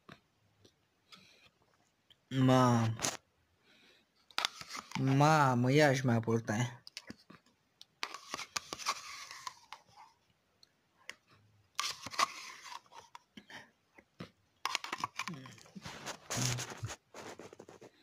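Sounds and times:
spoon scraping plastic cup: 4.3s - 5.2s, 8.0s - 10.1s, 11.8s - 13.2s, 14.6s - 18.0s.

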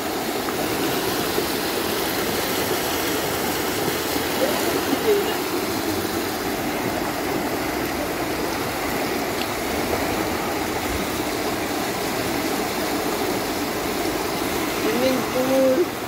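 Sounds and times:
floodwater rushing in drain channel: 0.0s - 16.0s.

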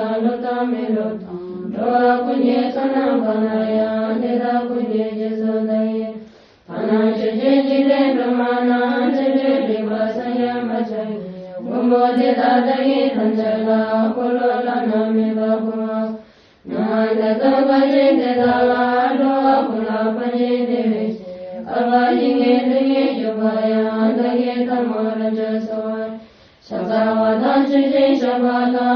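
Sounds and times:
chanting set to music: 0.0s - 28.9s.

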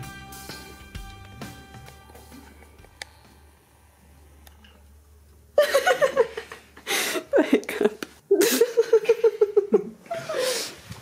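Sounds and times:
person laughing: 5.6s - 10.6s.

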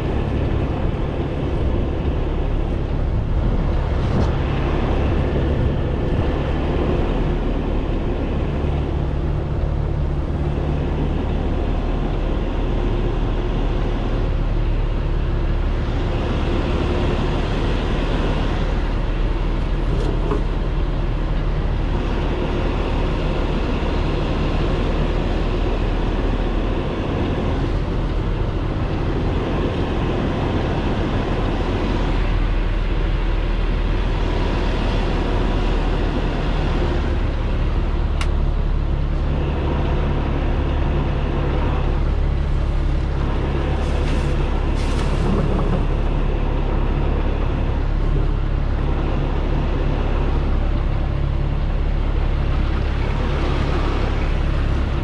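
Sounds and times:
truck diesel engine running: 0.0s - 55.0s.

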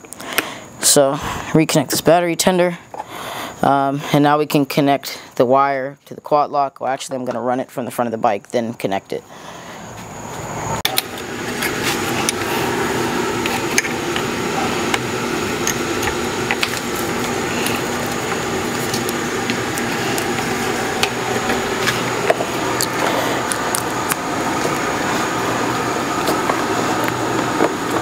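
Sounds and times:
machine hum: 9.2s - 28.0s.

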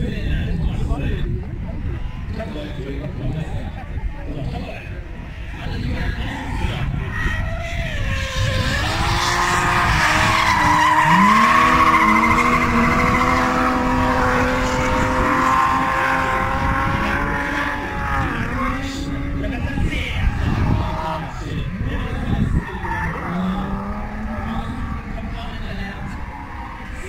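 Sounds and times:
high-revving car engines: 1.6s - 27.0s
tyres squealing: 9.4s - 14.4s.

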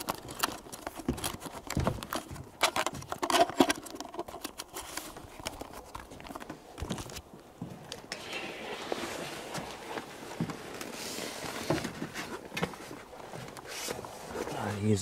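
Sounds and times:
carried gear rattling: 0.0s - 4.7s
footfalls on wooden boardwalk: 0.9s - 3.1s
soft rustle: 4.1s - 15.0s.

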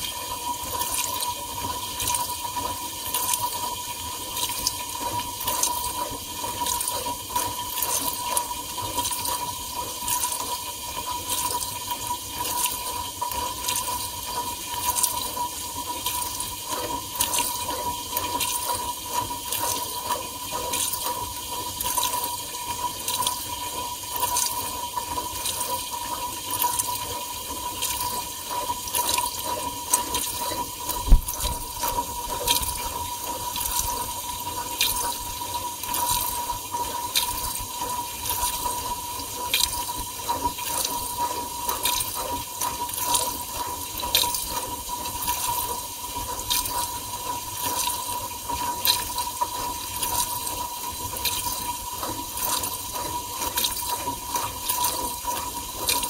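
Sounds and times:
water spraying in dishwasher: 27.8s - 56.0s.

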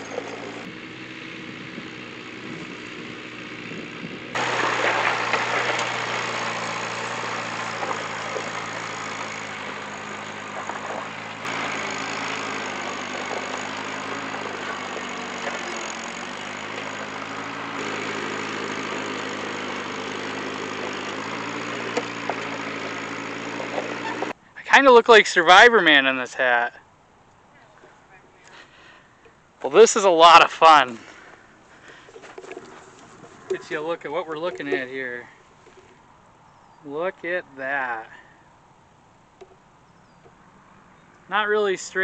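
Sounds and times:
tractor engine running: 0.0s - 24.8s, 29.1s - 36.1s.

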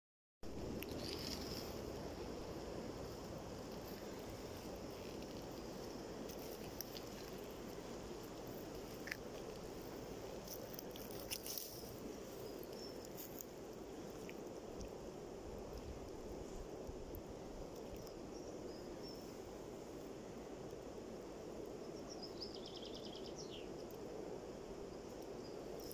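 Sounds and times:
steps in dry grass: 0.9s - 13.5s.

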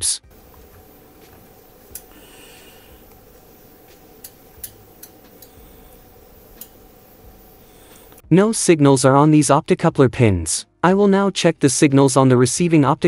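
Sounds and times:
low electrical hum: 0.2s - 8.2s
light clicks: 0.3s - 7.2s.

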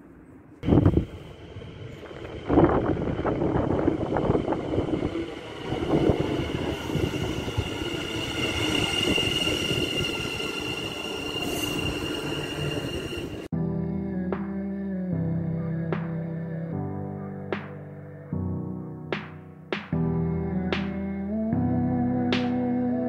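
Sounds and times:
train high whine: 0.0s - 13.5s
train rumbling: 0.0s - 13.5s
music: 11.5s - 23.0s.

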